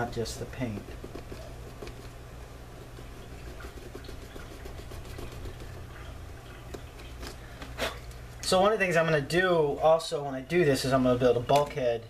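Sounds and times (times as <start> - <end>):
steady low hum: 0.0 - 12.0
sandpaper scratching on plastic: 2.8 - 5.7.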